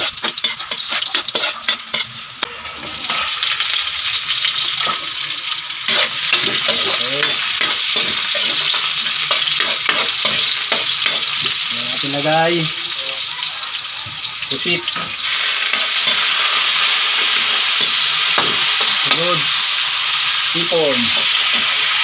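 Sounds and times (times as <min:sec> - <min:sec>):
metal spatula scraping wok: 0:00.0 - 0:05.2, 0:05.8 - 0:11.6, 0:14.7 - 0:19.8
garlic and onions sizzling in oil: 0:00.0 - 0:22.0.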